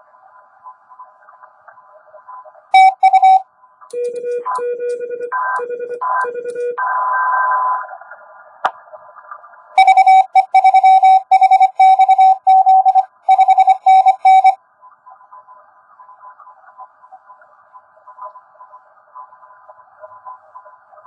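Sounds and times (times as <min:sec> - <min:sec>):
morse code keyed tones: 0:02.8 - 0:06.8, 0:09.8 - 0:14.6.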